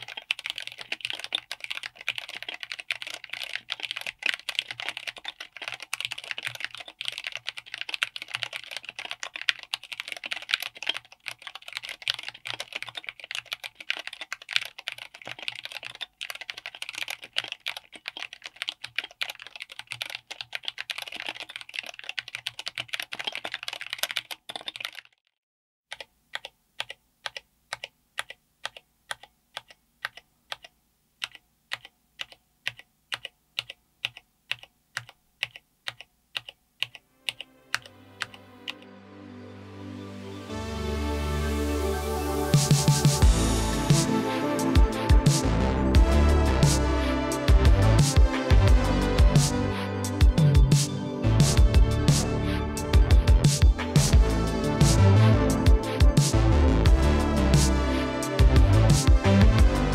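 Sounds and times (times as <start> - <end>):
fast typing on mechanical keyboard: 0.0 - 25.2, 25.9 - 38.8.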